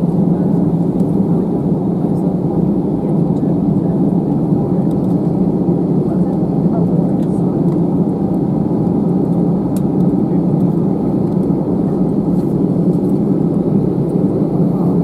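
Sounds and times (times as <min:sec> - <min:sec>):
aircraft cabin rumble while taxiing: 0:00.1 - 0:15.0.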